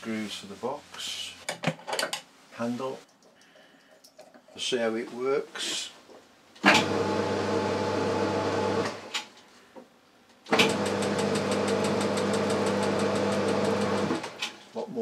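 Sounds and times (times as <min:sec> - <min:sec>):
lathe motor running: 0:06.7 - 0:09.0, 0:10.6 - 0:14.3.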